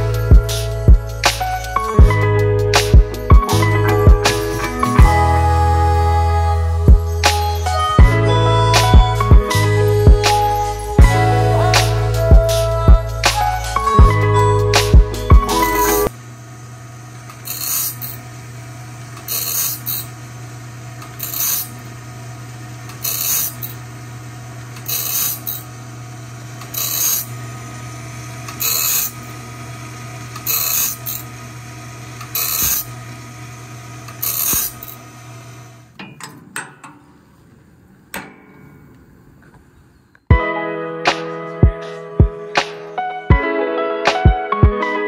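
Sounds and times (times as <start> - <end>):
music: 0.0 - 16.1, 40.3 - 45.0
motor hum: 0.0 - 39.7
grinding wheel rasping on metal: 17.4 - 18.2, 19.3 - 20.1, 21.1 - 21.8, 22.9 - 23.8, 24.8 - 25.7, 26.6 - 27.4, 28.5 - 29.4, 30.4 - 31.3, 32.3 - 33.0, 34.1 - 35.0
clicks: 35.9 - 40.3.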